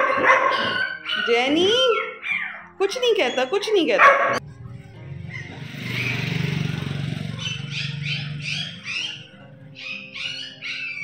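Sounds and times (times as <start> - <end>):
passing vehicle engine humming: 4.4 - 10.0
small birds chirping: 7.2 - 11.0.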